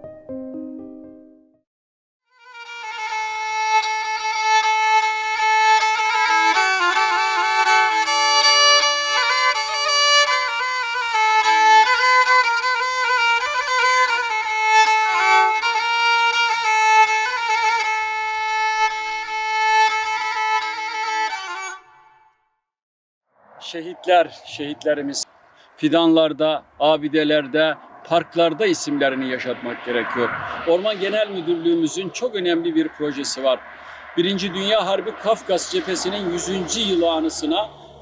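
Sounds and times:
violin melody with vibrato: 0:02.4 - 0:22.3.

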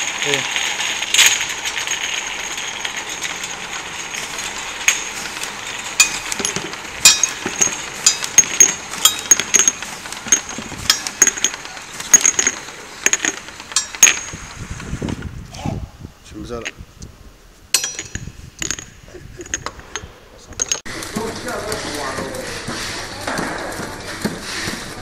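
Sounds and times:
glass bottles clinking: 0:00.0 - 0:14.5, 0:17.7 - 0:23.5
steady machine running noise: 0:00.0 - 0:15.4, 0:19.5 - 0:25.0.

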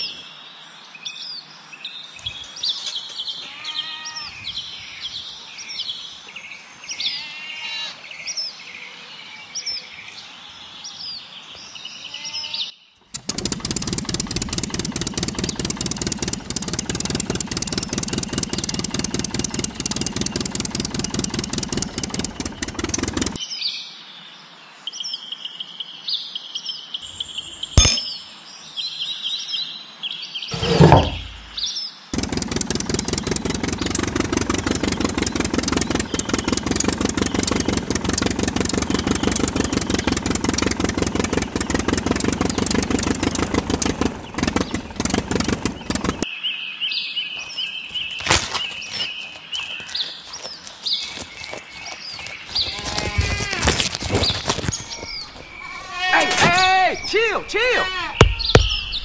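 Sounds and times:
birds chirping: 0:01.2 - 0:23.4, 0:27.0 - 0:29.0, 0:30.5 - 0:59.0
tractor engine pulsing: 0:13.0 - 0:23.4, 0:30.5 - 0:31.6, 0:32.2 - 0:46.2, 0:47.4 - 0:59.0
sharp click: 0:27.8 - 0:28.3.

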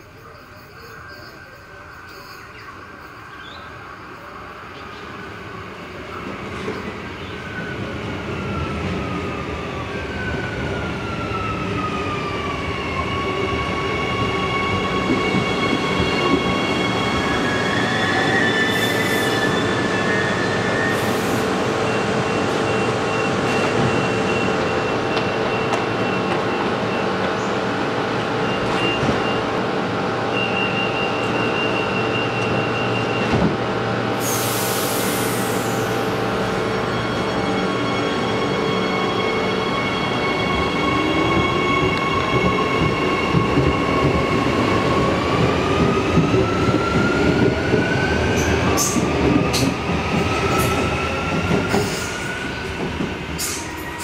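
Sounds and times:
train hum: 0:00.0 - 0:54.0
electric train braking to a stop: 0:06.1 - 0:54.0
brief hisses: 0:34.2 - 0:35.9.

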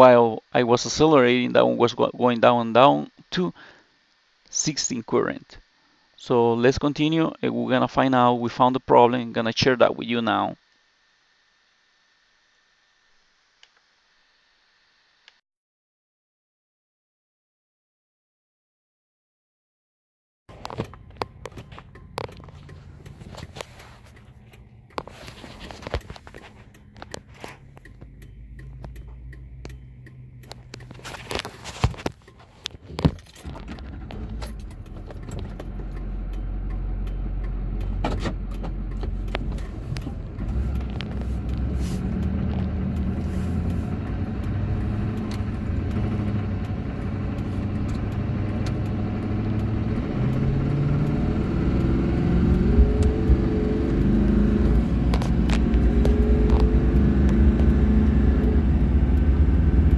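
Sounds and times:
diesel engine inside truck cab: 0:20.5 - 0:59.9
road noise: 0:20.5 - 0:59.9.

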